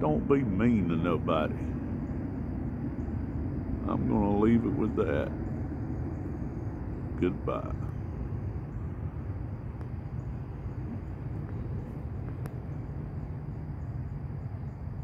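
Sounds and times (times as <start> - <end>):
high insect drone: 0.0 - 15.0
steady low rumble: 0.0 - 15.0
faint clicks: 12.2 - 12.6.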